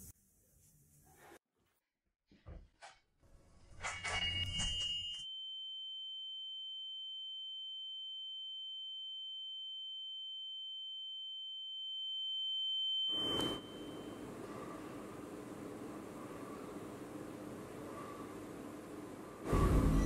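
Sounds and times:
high-pitched ringing tone: 3.9 - 14.3
short noisy crash: 19.5 - 20.0.

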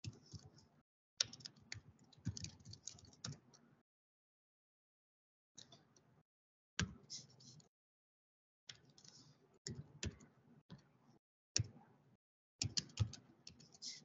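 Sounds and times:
computer keyboard typing: 0.0 - 0.6, 1.2 - 3.6, 12.6 - 14.0.

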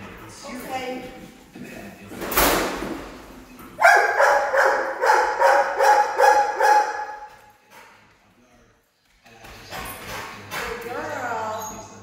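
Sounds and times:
dog barking: 3.8 - 7.4.

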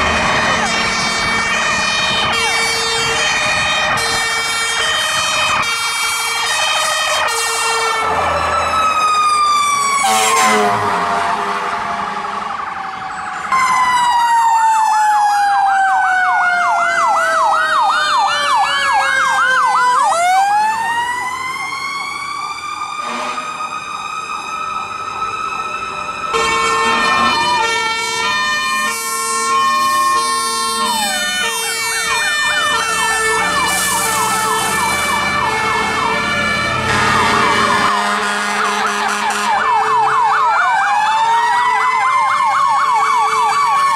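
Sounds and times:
fire engine sirens: 0.0 - 43.9.

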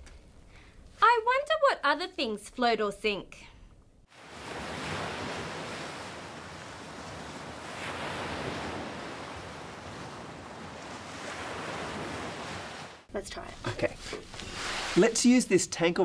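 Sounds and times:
ocean waves washing: 4.1 - 13.1.

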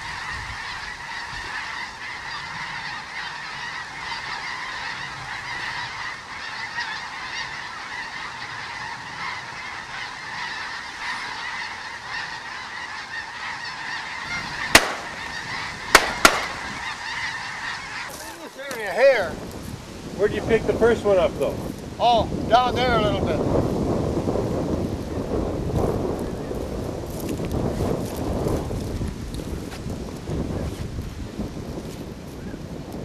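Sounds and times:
geese honking: 0.0 - 23.5
gunshots: 14.7 - 15.3, 15.9 - 16.7.

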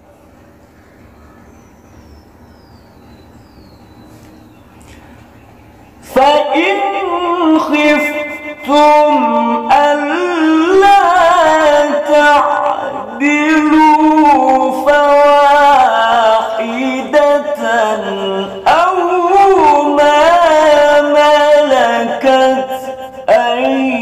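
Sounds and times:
man reciting melodically: 6.0 - 24.0.

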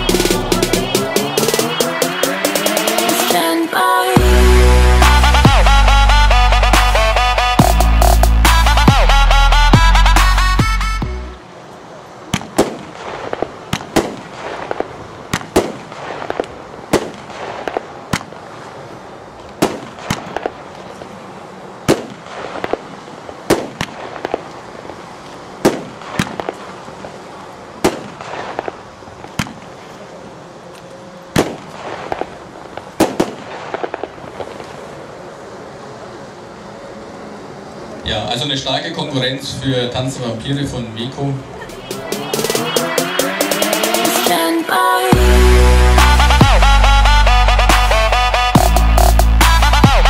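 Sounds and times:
firework bangs: 12.2 - 30.1, 31.2 - 35.8
firework shells launching: 12.3 - 18.7, 19.4 - 21.0, 21.8 - 27.1, 27.8 - 29.8, 31.3 - 35.0.

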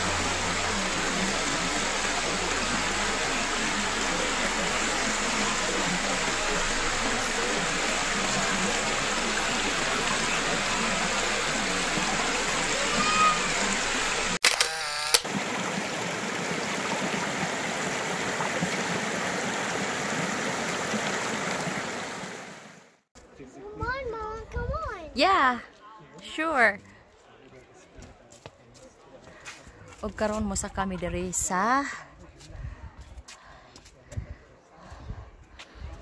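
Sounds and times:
creek rushing over stones: 0.0 - 14.4, 15.1 - 23.0.

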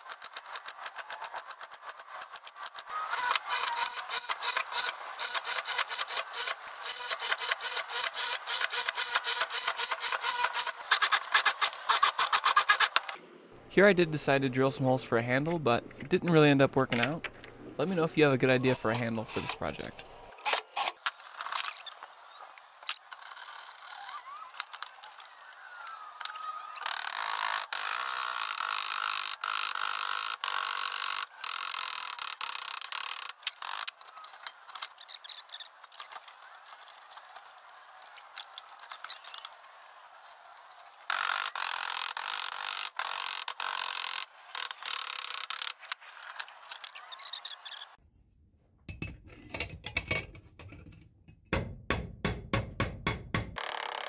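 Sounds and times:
drill squealing into steel: 3.0 - 12.9.

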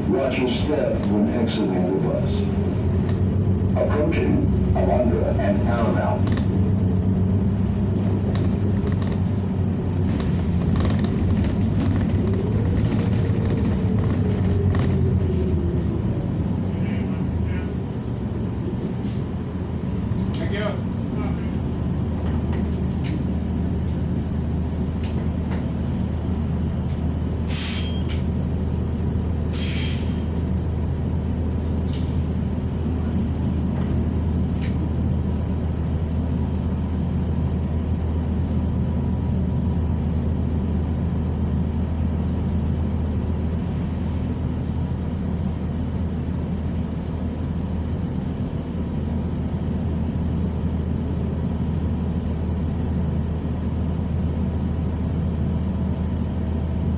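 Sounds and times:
bus engine and road rumble: 0.0 - 56.9
air brake hisses: 27.4 - 28.2, 29.5 - 30.3.

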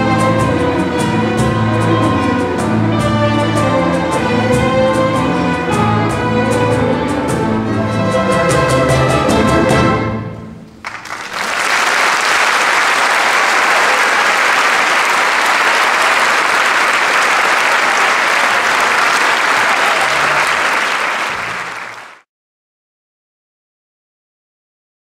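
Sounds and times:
audience applause: 10.8 - 22.2.

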